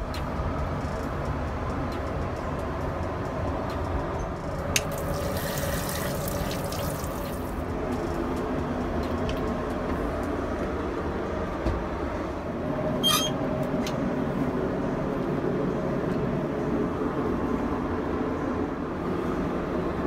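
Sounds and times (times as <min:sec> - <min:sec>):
tap water running into basin: 0:04.8 - 0:07.6.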